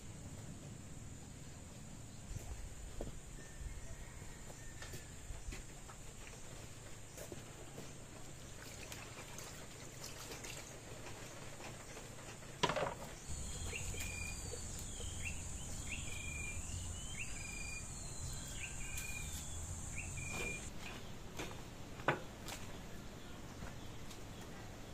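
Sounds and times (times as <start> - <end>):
bird chirping: 13.2 - 20.7
insects droning: 13.2 - 20.7.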